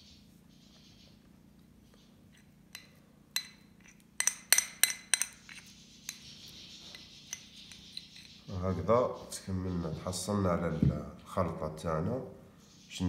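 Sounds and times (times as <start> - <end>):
fork clinking on porcelain saucer: 2.4 - 6.2.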